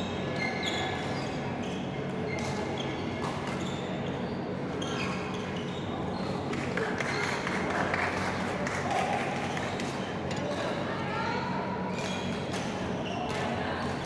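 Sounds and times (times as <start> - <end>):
shoe squeaks on court floor: 0.0 - 6.5
low hum in large hall: 0.0 - 14.0.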